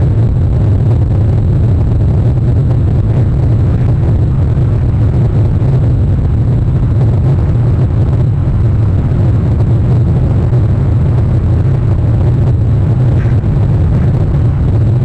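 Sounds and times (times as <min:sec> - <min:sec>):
steady low outdoor rumble: 0:00.0 - 0:15.0.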